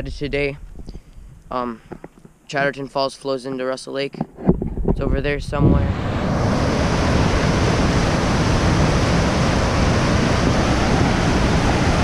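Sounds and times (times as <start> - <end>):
water rushing over boulders: 6.0 - 12.0.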